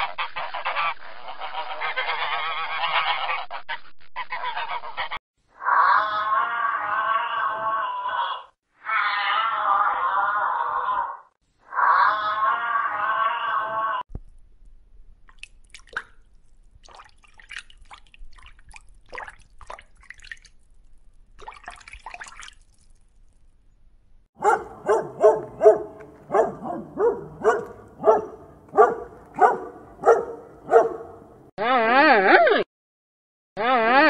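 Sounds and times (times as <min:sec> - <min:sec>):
dog barking: 0:24.4 - 0:31.4.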